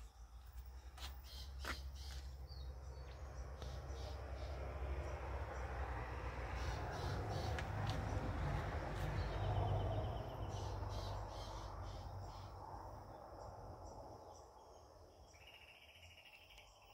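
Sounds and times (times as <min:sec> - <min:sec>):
insect chirps: 0:00.0 - 0:16.9.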